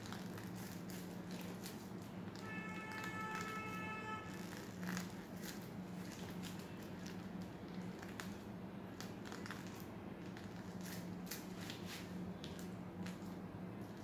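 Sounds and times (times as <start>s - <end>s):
plastic piping bag crinkling: 0.0s - 14.0s.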